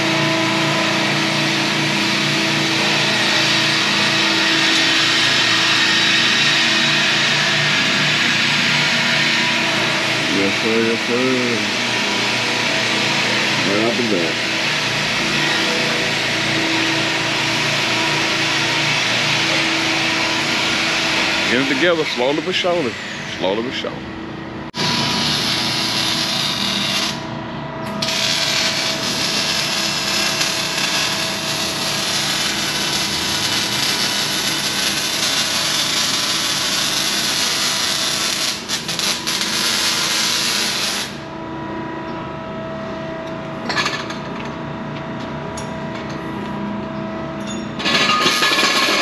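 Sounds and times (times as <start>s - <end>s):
shop machinery hum: 0.0s - 49.0s
power tool harsh hiss: 24.8s - 27.2s, 28.0s - 41.2s.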